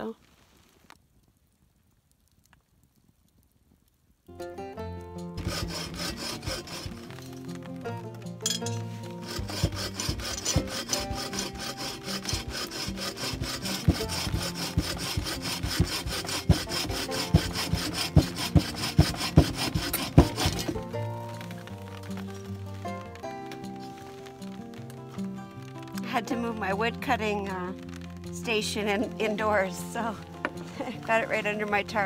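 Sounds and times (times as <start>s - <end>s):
background music: 4.3s - 32.0s
hand saw cutting log: 5.4s - 21.6s.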